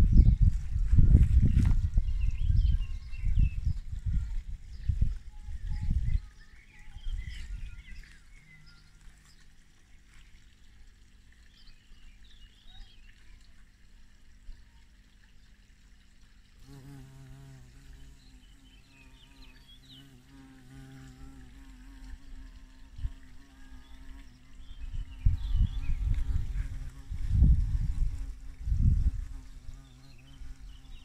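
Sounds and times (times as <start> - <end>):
bee buzzing in flight: 16.6 - 31.0.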